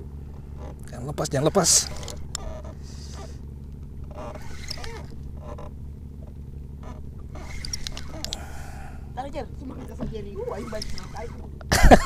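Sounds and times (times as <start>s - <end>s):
boat engine humming: 0.0s - 12.0s
light clicks: 7.4s - 8.4s.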